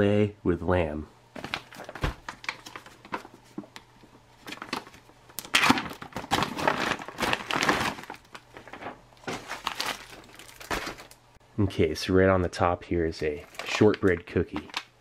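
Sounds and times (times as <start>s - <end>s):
plastic and foil crinkling: 1.4s - 11.2s, 13.4s - 15.0s
plastic bag tearing: 4.5s - 11.2s, 13.4s - 14.9s.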